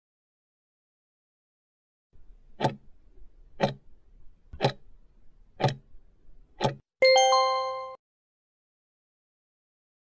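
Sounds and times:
clock ticking: 0:02.4 - 0:04.9, 0:05.6 - 0:05.9, 0:06.6 - 0:06.8.

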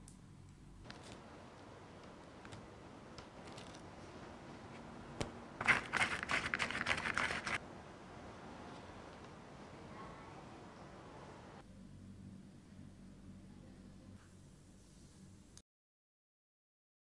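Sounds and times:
paper packet crinkling: 0:05.6 - 0:07.6.

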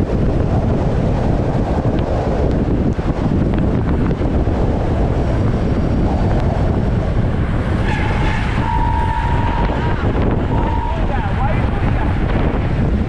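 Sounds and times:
wind buffeting microphone: 0:00.0 - 0:13.0
high-pitched tone: 0:08.6 - 0:11.2.

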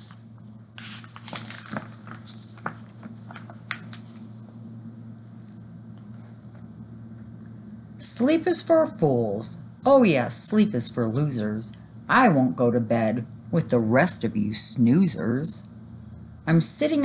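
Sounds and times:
book pages turning: 0:00.8 - 0:04.3.

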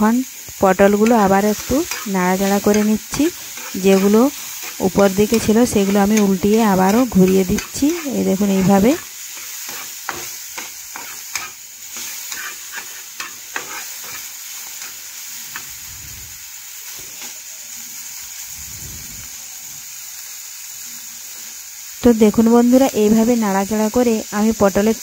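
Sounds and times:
vegetables sizzling in oil: 0:00.0 - 0:25.0
spatula scraping a pan: 0:00.9 - 0:15.8.

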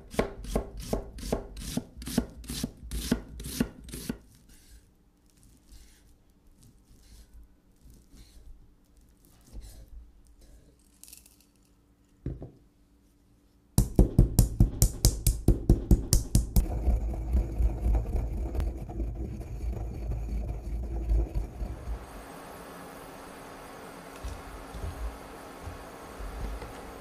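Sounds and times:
pestle striking peppercorns: 0:13.8 - 0:17.9
pestle grinding in mortar: 0:13.8 - 0:22.1.

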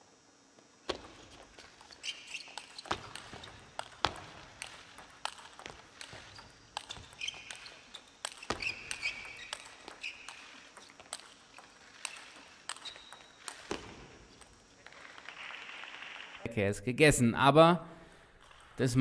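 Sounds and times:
shoes squeaking on floor: 0:00.9 - 0:15.5
table tennis ball clicking: 0:00.9 - 0:16.3.

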